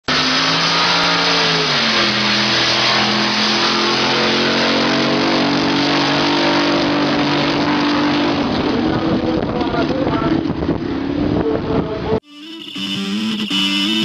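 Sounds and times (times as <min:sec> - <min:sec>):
racing boat engine at high revs: 0:00.0 - 0:10.3.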